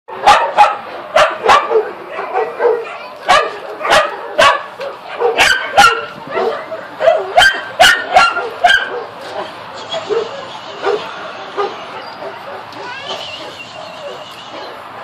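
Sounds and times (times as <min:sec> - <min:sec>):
dog barking in yips: 0:00.2 - 0:14.8
dog whining: 0:11.6 - 0:14.8.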